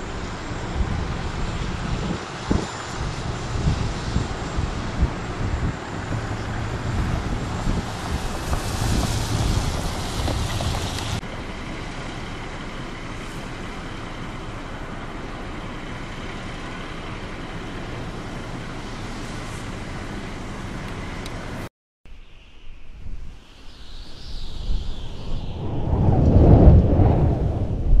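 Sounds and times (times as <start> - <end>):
traffic hum and idling vehicles: 0.0 - 21.7
vehicles passing on wet pavement: 0.0 - 21.7.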